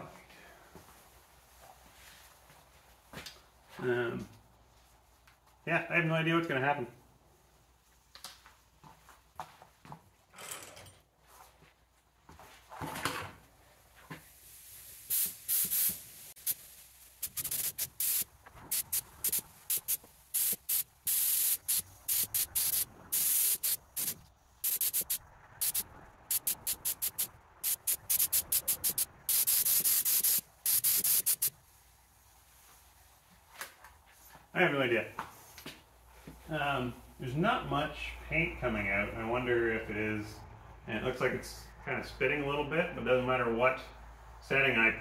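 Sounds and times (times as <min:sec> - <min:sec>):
spray gun hissing bursts: 0:14.4 - 0:31.6
spray gun spitting: 0:14.9 - 0:31.5.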